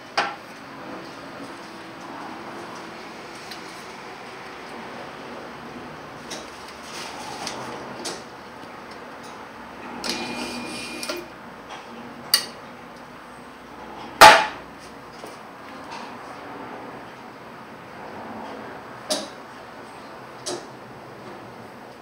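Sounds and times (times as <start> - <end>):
machine whirring: 9.8 - 11.3.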